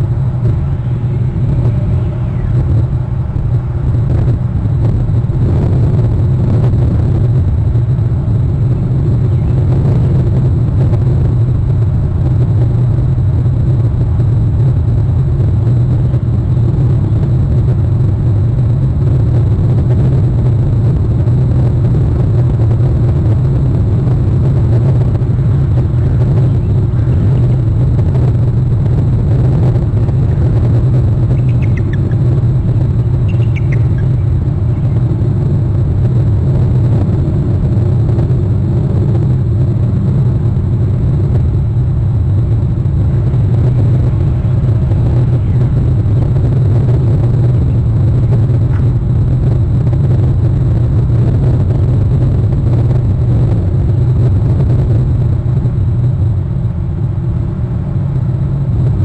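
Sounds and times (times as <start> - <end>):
low outdoor rumble: 0.0 - 59.0
eagle high chirps: 31.3 - 35.0.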